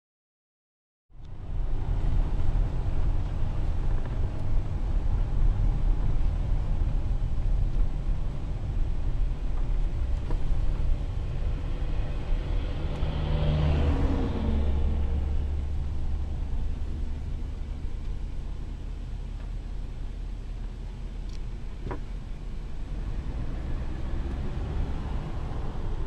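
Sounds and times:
car road and engine noise: 1.1s - 26.0s
oncoming vehicle passing: 11.1s - 17.0s, 23.0s - 26.0s.

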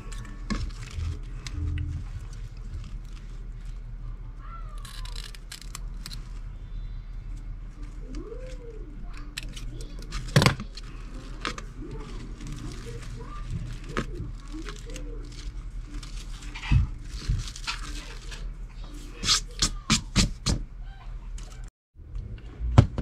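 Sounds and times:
crinkling and rustling: 0.0s - 6.6s, 7.2s - 19.5s
steady low hum: 0.0s - 23.0s.

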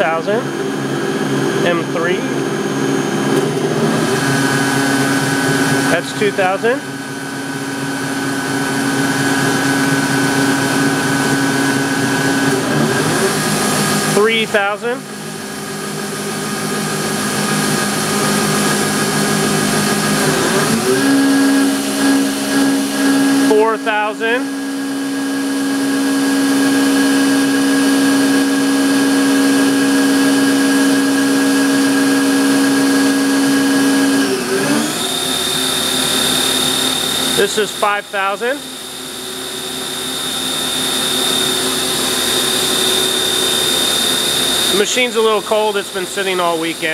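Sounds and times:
machine spindle hum and whine: 0.0s - 46.9s.

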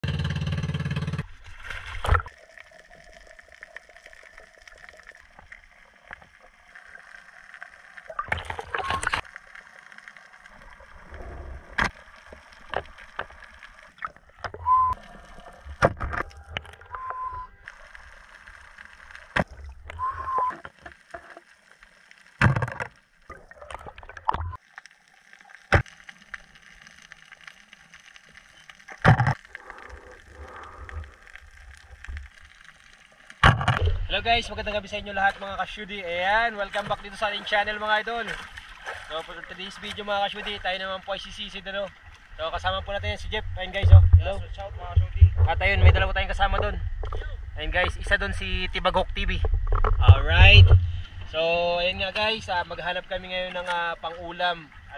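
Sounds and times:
water gurgling and bubbling: 10.3s - 17.9s.

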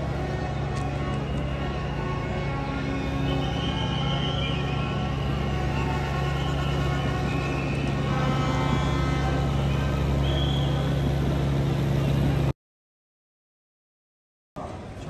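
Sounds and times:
mower engine running: 4.6s - 12.5s.

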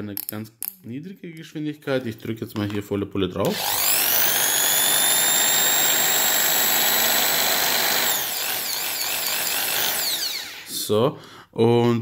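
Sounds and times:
impact drill motor whine: 3.5s - 10.7s.

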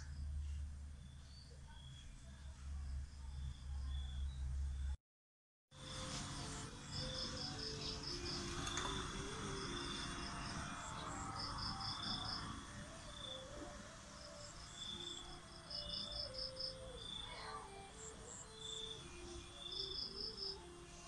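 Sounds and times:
insects chirping: 5.8s - 20.7s
soft background music: 5.8s - 21.0s.

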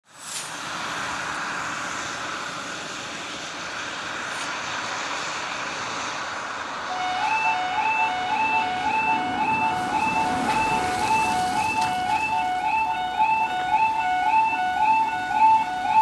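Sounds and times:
steady hiss: 0.1s - 6.9s
level crossing two-tone alarm: 6.9s - 16.0s.

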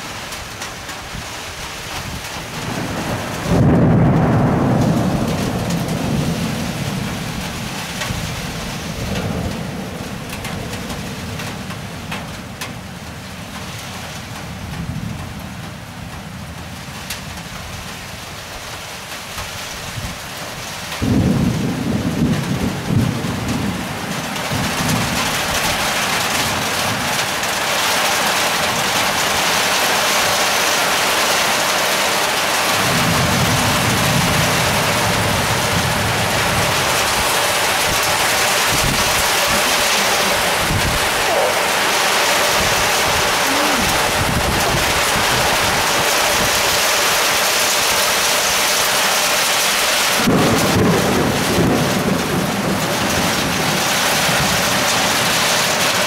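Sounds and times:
heavy rain: 0.0s - 56.0s
loud thunderclap: 2.0s - 12.3s, 21.0s - 27.1s, 32.8s - 46.9s, 50.1s - 55.9s
rolling thunder: 2.0s - 13.0s, 21.0s - 27.3s, 32.7s - 46.9s, 50.0s - 55.9s.

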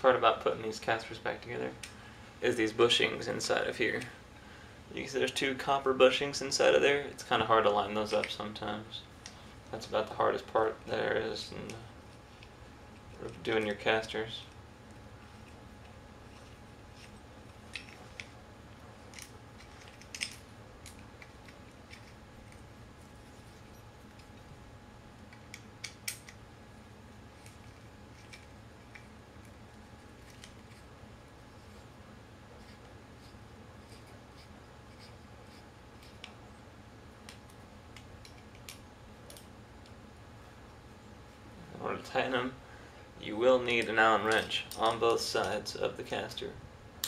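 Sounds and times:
steady low hum: 0.0s - 47.0s
small metal parts clicking: 15.4s - 18.4s, 19.0s - 22.7s, 25.3s - 26.4s.

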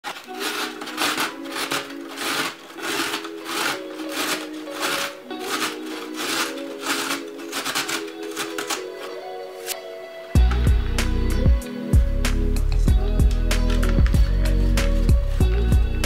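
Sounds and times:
carrot grated on metal grater: 0.0s - 9.1s
background music: 0.0s - 16.0s.

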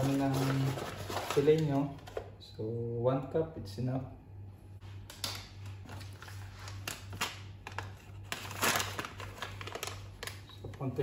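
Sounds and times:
plastic packet crinkling: 0.0s - 1.9s, 6.0s - 11.0s
steady low hum: 0.0s - 11.0s.

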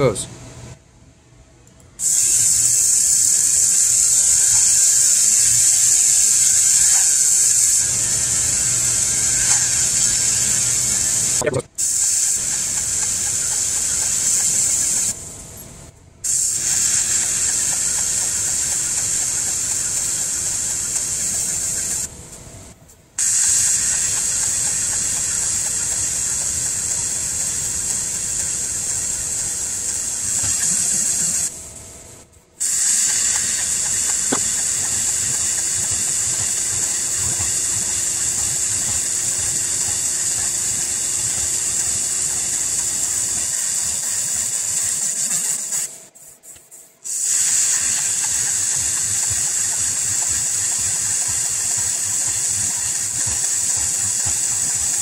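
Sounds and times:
laser marking high hiss: 2.0s - 15.3s, 16.2s - 22.1s, 23.2s - 31.6s, 32.6s - 55.0s.

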